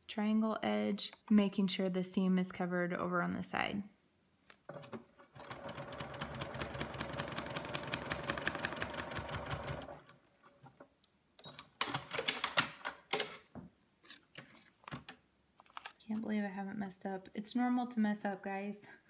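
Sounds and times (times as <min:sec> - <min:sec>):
sewing machine stitching: 0:04.7 - 0:10.1.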